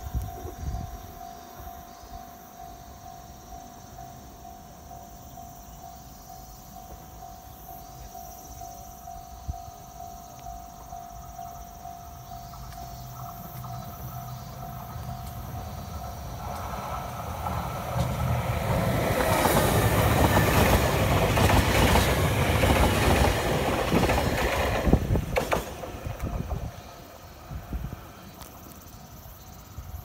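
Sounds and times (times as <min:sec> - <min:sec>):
electric train passing: 0:00.0 - 0:30.0
wheels clacking over rail joints: 0:12.4 - 0:27.1.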